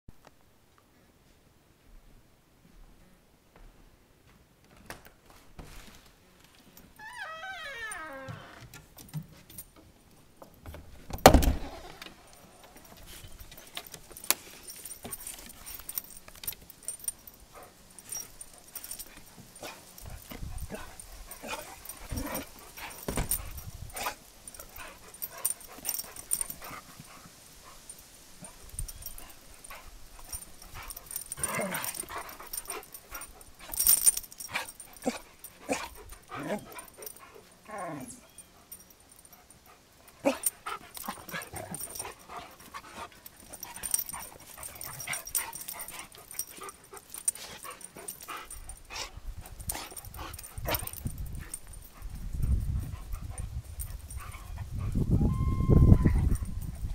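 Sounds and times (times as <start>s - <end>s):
collar tags jingling: 6.6s - 56.9s
dogs whining and yipping: 7.0s - 8.6s, 16.9s - 27.1s, 28.4s - 39.5s, 40.1s - 56.9s
dogs scuffling: 12.0s - 37.7s.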